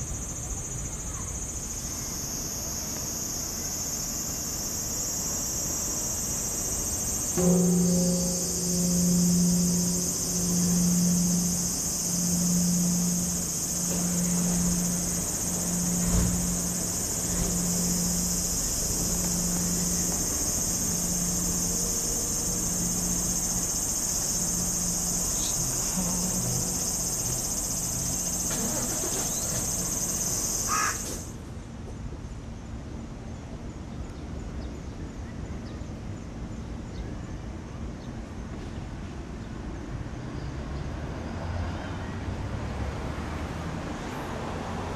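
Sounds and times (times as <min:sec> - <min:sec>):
insect chorus shrilling: 0:00.0 - 0:31.3
low pulsing hum: 0:06.2 - 0:31.2.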